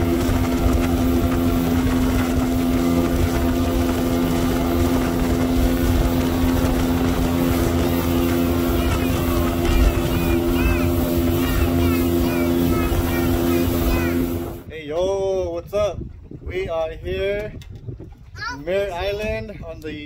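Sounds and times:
outboard motor running: 0.0s - 14.7s
wake rushing off hull: 0.0s - 14.7s.

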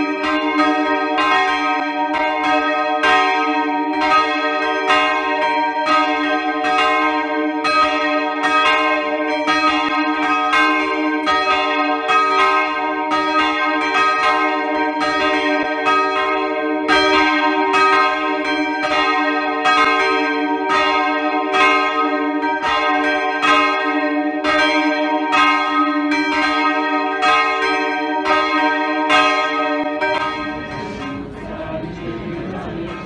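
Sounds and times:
church bells ringing: 0.0s - 33.0s.

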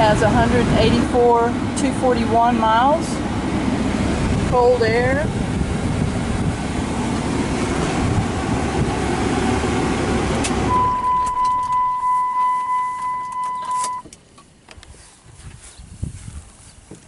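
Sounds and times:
diesel truck running: 0.0s - 14.8s
ignition switch click: 10.4s - 14.8s
warning chime dinging: 10.7s - 14.0s.

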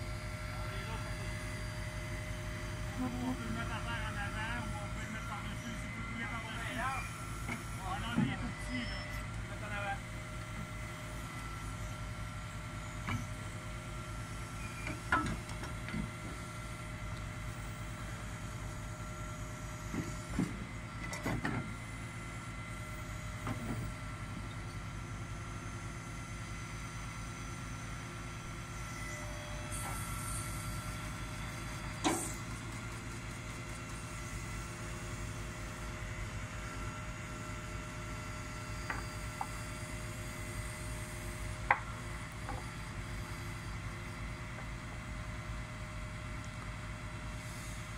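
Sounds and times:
steady whine: 0.0s - 46.7s
knocks and clanks of wood: 19.9s - 21.7s.

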